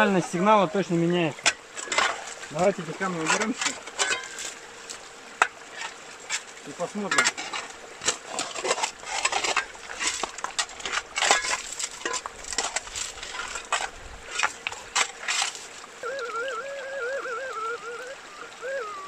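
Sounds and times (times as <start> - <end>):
scraping and rustling: 5.7 - 16.0.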